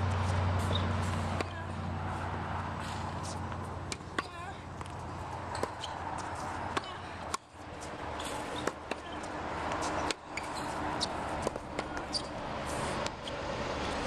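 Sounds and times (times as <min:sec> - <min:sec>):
tennis racket striking ball: 0:00.6 - 0:01.8, 0:02.8 - 0:07.5, 0:08.2 - 0:12.3
ball bouncing on hard court: 0:03.9 - 0:07.5, 0:08.2 - 0:12.3.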